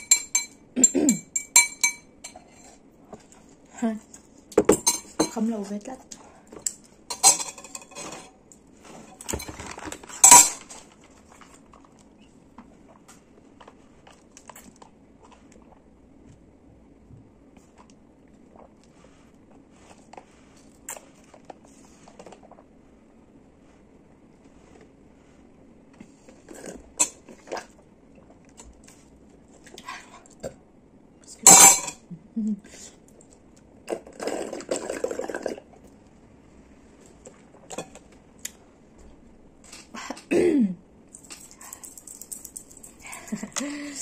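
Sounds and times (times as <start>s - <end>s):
spoon clinking on ceramic bowl: 0.0s - 2.7s.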